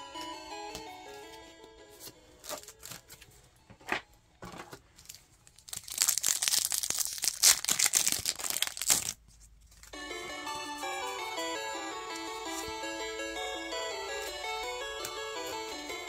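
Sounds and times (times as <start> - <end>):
loud foil crinkling: 2.4 - 3.2, 5.0 - 10.0
foil wrapper tearing and crinkling: 5.0 - 9.9.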